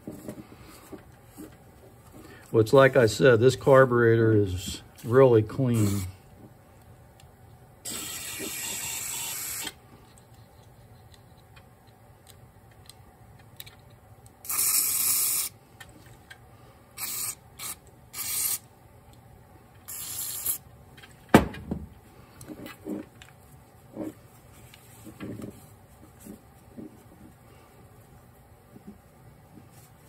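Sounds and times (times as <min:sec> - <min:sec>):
hissing spray bursts: 0:14.4 - 0:15.5
thump: 0:21.3 - 0:21.9.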